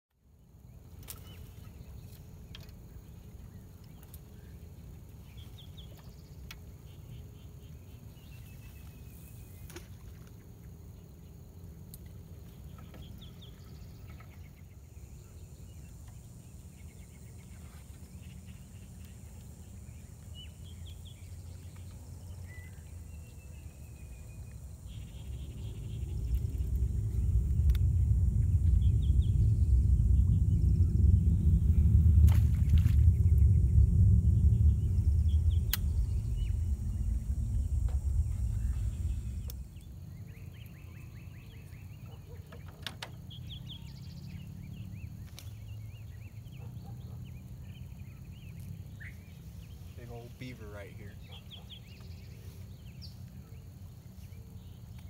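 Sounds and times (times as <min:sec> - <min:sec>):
steady low rumble: 0:10.5 - 0:42.1
birds chirping and whistling: 0:19.8 - 0:53.6
faint clicks: 0:35.6 - 0:36.1.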